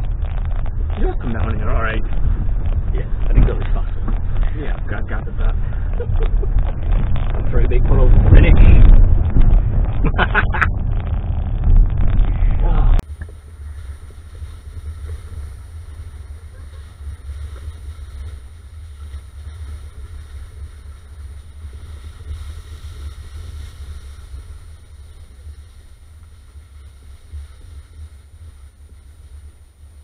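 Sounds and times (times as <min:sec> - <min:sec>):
car driving low rumble: 0:00.0 - 0:30.0
wind on microphone: 0:00.0 - 0:30.0.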